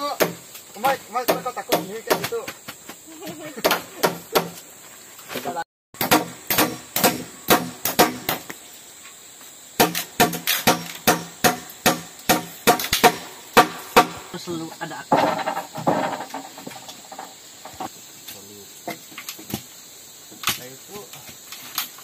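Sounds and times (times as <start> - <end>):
rough scraping or rustling: 14.6 - 18.0.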